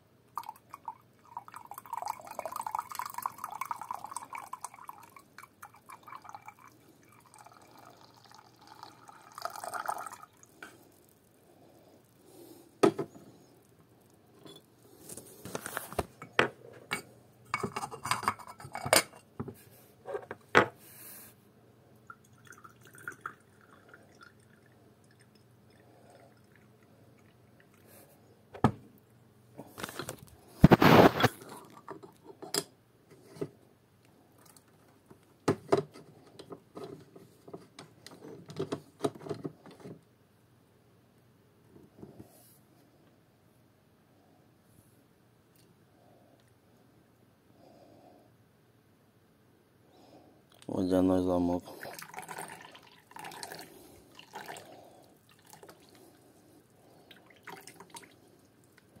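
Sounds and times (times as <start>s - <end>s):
tea pouring into clay vessel: 0.4s - 12.5s, 22.1s - 27.9s, 50.7s - 58.8s.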